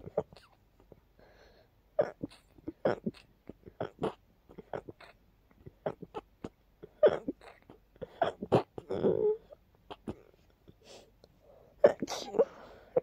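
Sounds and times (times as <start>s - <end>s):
quiet breaths: 0.0s - 3.8s, 8.9s - 13.0s
person sneezing: 11.8s - 13.0s.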